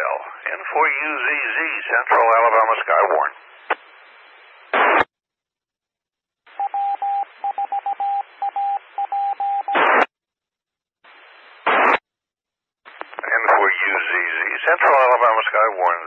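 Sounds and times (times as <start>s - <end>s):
radio carrier hiss: 0.0s - 5.1s, 11.1s - 12.0s, 12.9s - 16.0s
morse code beeping tone: 6.6s - 9.8s.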